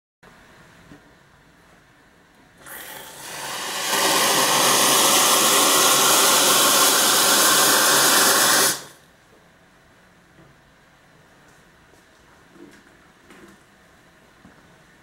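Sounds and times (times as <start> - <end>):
steam wand hissing: 2.6 - 9.0.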